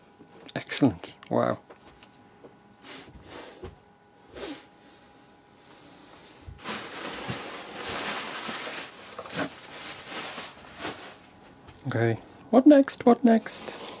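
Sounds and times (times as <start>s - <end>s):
tissue paper rustling: 6.6s - 11.3s, 13.5s - 14.0s.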